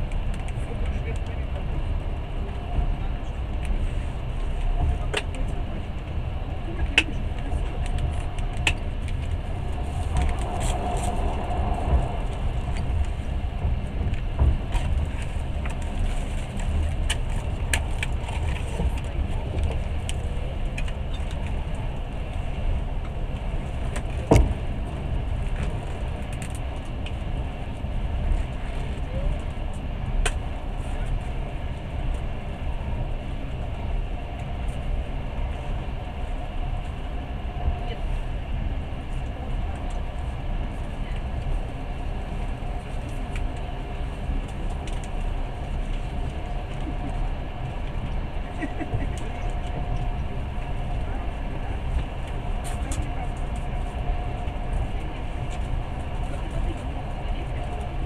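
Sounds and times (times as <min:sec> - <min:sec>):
train rumbling at speed: 0:00.0 - 0:58.0.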